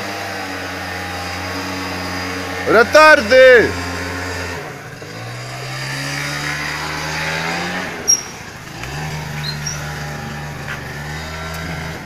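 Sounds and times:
scooter engine pulling away: 0:00.0 - 0:12.0
sharp high chirps: 0:08.1 - 0:08.5.

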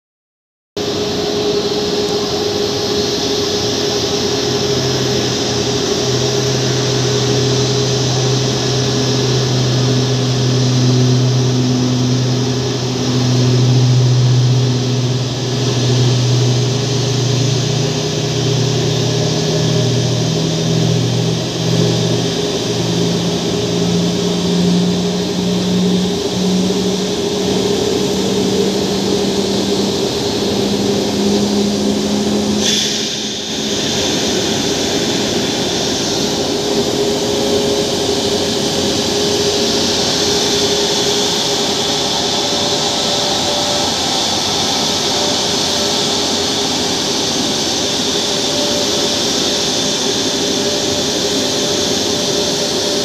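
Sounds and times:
constant low hum: 0:00.8 - 0:53.0
jet engines whining: 0:00.8 - 0:53.0.

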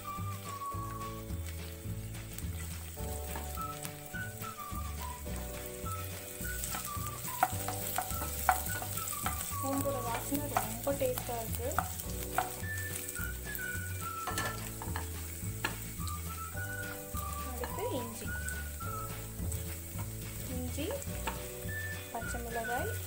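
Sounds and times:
garlic sizzling in hot oil: 0:00.0 - 0:23.0
spatula scraping and tapping pan: 0:01.7 - 0:04.6, 0:05.3 - 0:23.0.

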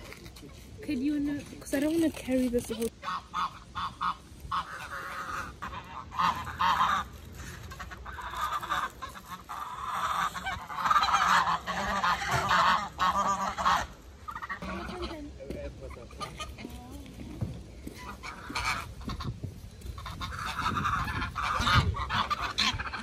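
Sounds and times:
geese honking: 0:01.8 - 0:16.9, 0:18.0 - 0:23.0.

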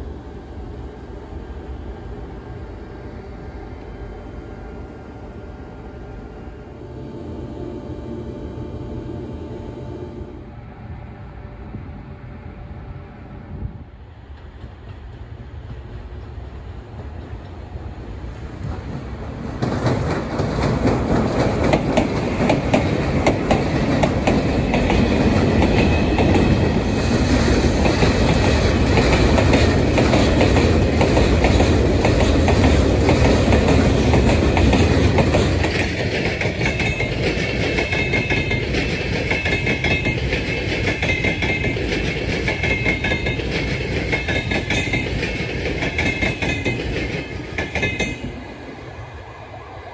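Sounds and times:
passenger train whine: 0:00.0 - 0:49.9
freight train wheels clattering: 0:14.2 - 0:17.8, 0:18.4 - 0:48.5.

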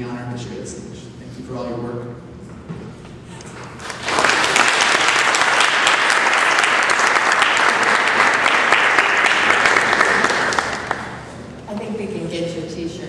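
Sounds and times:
audience applauding: 0:03.8 - 0:11.4.

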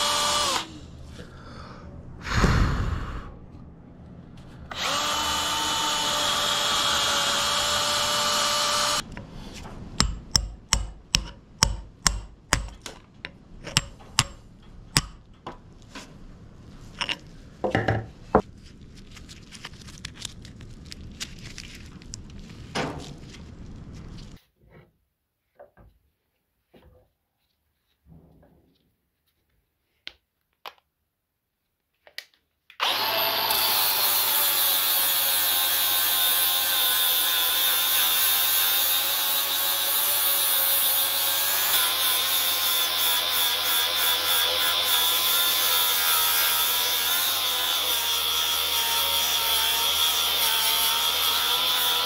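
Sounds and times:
electric drill boring into wood: 0:00.0 - 0:00.8, 0:04.7 - 0:09.1, 0:32.8 - 0:52.0
hammer blows on steel punch: 0:10.0 - 0:12.8, 0:13.7 - 0:14.4, 0:15.0 - 0:15.3.

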